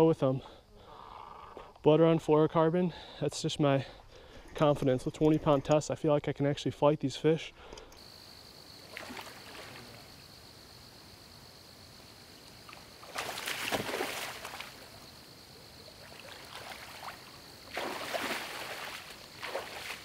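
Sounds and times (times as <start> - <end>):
low steady water hiss: 5.8 - 20.0
water splashing around wading legs: 8.8 - 10.0, 12.6 - 15.0, 15.9 - 20.0.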